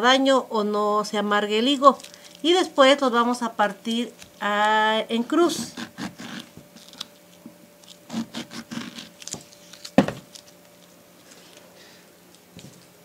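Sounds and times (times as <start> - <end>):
knife cutting figs: 5.5 - 10.5.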